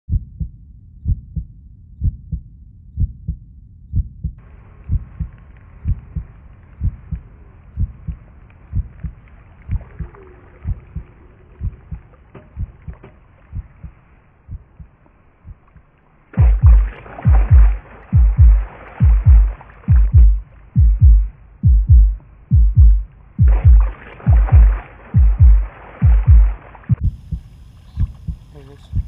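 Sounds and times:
heartbeat double thump: 0.1 - 2.4, 3.0 - 7.2, 7.8 - 10.1, 10.7 - 15.7, 16.4 - 29.0
faint outdoor ambience hiss: 4.4 - 29.0.

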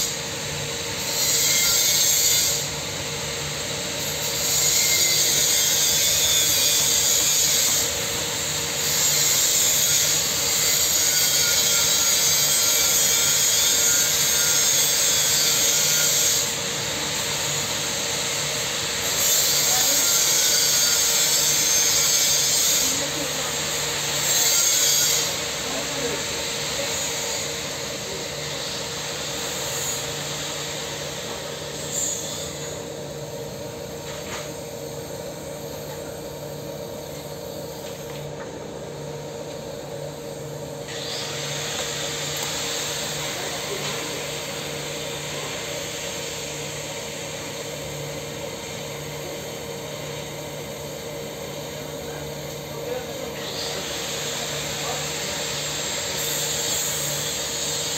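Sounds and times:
hiss: 40.8 - 50.6, 52.8 - 57.9.

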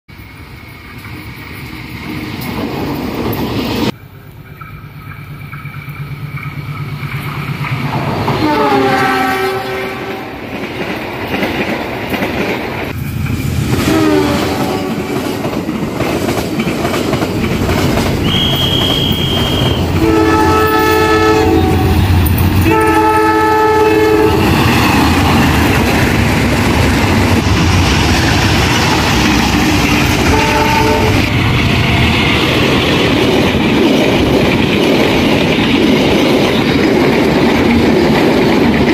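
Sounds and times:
wheels clattering on rails: 0.8 - 8.5, 10.0 - 38.9
train air horn blasts: 8.4 - 10.4, 13.8 - 15.1, 18.2 - 24.6, 30.1 - 31.4
locomotive engine rumble: 14.4 - 38.9.

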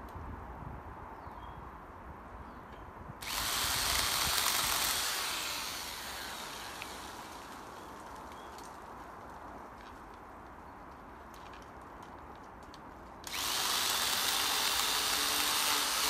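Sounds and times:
falling whine of saw winding down: 3.2 - 7.7
electric pole saw running: 3.2 - 7.8, 13.3 - 16.0.

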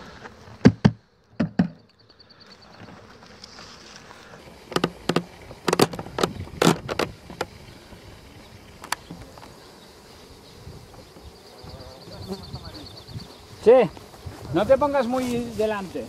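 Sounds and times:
bees buzzing: 0.0 - 16.0
sharp knocks near microphone: 0.6 - 1.8, 4.7 - 7.5.

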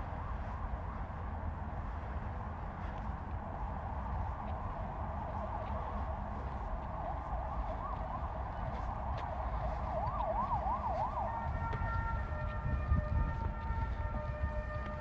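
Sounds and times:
electronic siren wailing: 5.3 - 15.0.

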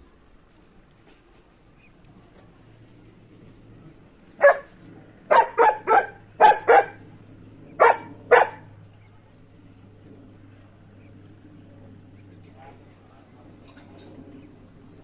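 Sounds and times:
dog barking sharply: 4.4 - 4.7, 5.3 - 7.0, 7.8 - 8.7.

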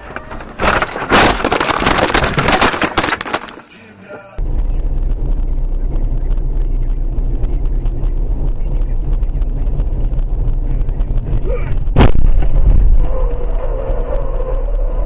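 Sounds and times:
car road and engine rumble: 0.0 - 15.0
sudden loud noise: 4.4 - 15.0.

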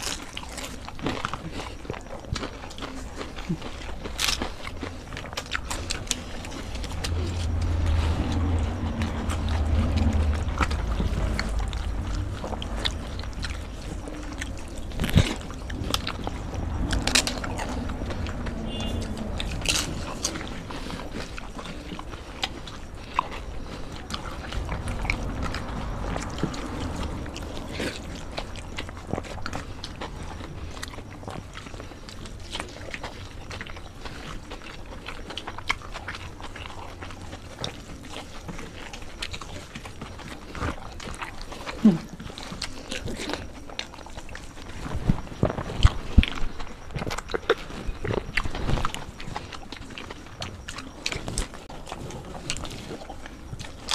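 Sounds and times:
people chewing and biting: 0.0 - 53.9
low rumble: 5.9 - 32.0.

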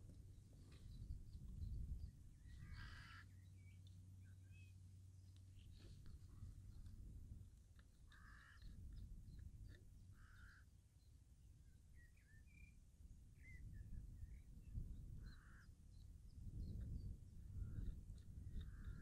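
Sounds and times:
steady low rumble: 0.0 - 10.5, 13.0 - 19.0
harsh bird calls: 2.4 - 3.8, 9.7 - 10.8.

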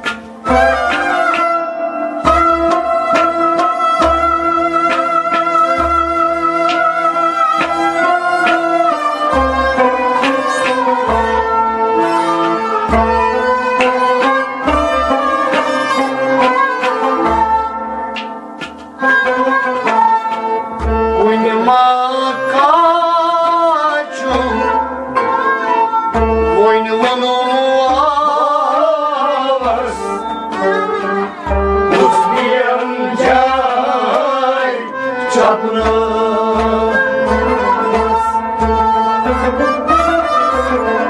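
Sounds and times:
drum beat: 0.0 - 18.9
man singing devotional song: 21.1 - 24.8, 26.5 - 38.4.

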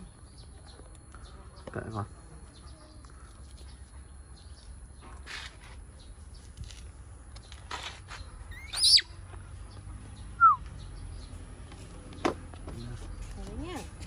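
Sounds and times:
animal chirp: 8.5 - 9.1
falling whistle call: 10.4 - 10.6.

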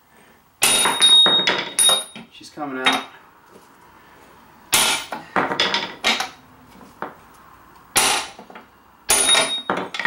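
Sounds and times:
sledgehammer clanging on steel: 0.6 - 3.2, 4.8 - 6.4, 9.1 - 10.0.

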